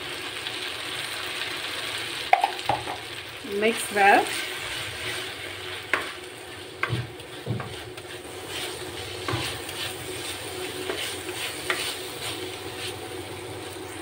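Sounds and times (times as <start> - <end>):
vegetables sizzling in frying pan: 0.0 - 14.0
spatula knocking against pan: 2.3 - 3.0, 6.8 - 7.8
spatula stirring in pan: 4.0 - 14.0.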